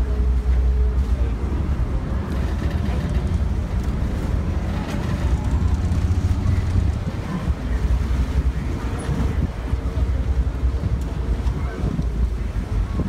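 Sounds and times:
boat engine rumbling: 0.0 - 13.0
wind on microphone: 1.4 - 13.0.

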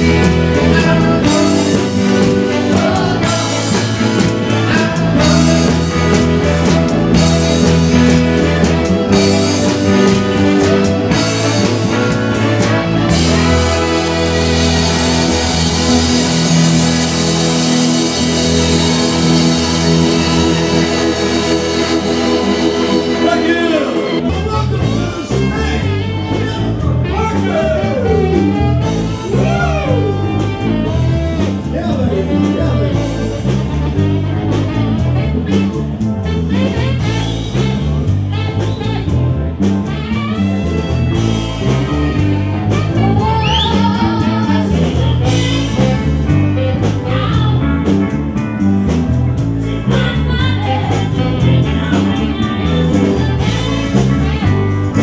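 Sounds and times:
bass line: 0.0 - 55.0
drums: 0.0 - 55.0
electric guitar: 0.0 - 55.0
woman singing: 42.9 - 46.2, 46.8 - 48.0, 49.8 - 54.7.

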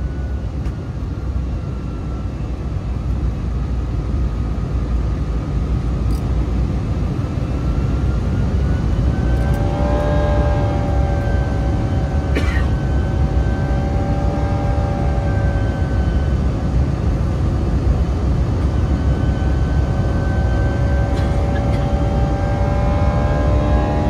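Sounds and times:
jet engines droning in cabin: 0.0 - 24.0
buzzing engine tones sliding in pitch: 7.4 - 24.0.

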